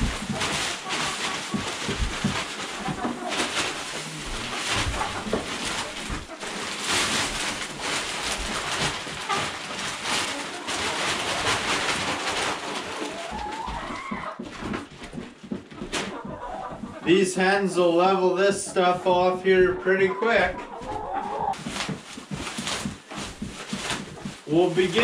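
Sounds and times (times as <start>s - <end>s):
wood shavings pouring: 0.0s - 13.9s, 21.6s - 25.0s
plastic bag rustling: 0.0s - 18.2s, 19.1s - 25.0s.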